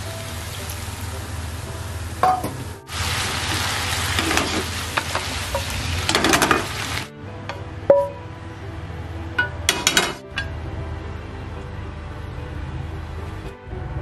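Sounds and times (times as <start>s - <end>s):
food sizzling in frying pan: 0.0s - 7.1s.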